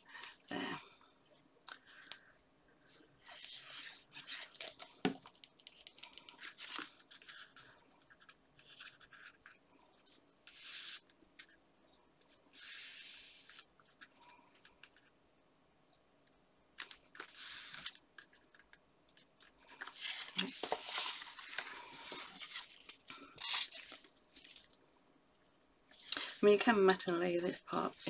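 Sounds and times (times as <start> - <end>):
paper and card rustling: 3.2 - 11.1, 16.8 - 24.7.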